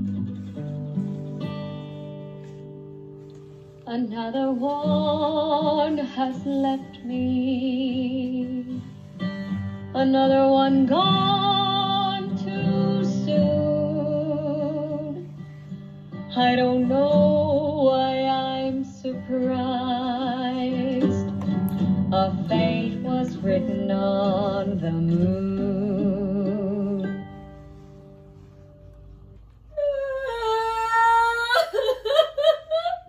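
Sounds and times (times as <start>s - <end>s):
acoustic guitar: 0.0s - 33.0s
woman singing with vibrato: 3.9s - 8.8s, 9.9s - 15.3s, 16.3s - 21.3s, 22.1s - 27.2s, 29.7s - 33.0s.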